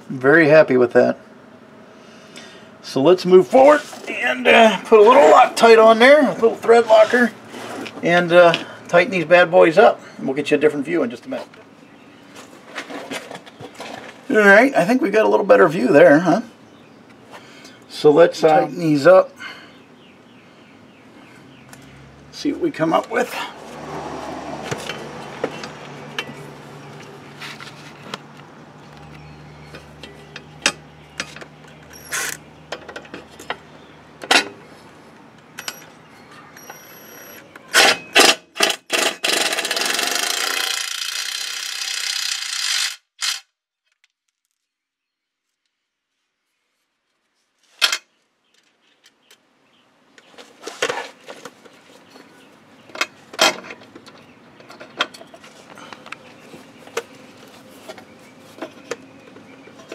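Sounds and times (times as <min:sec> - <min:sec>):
cordless driver running: 0:38.9 - 0:43.4.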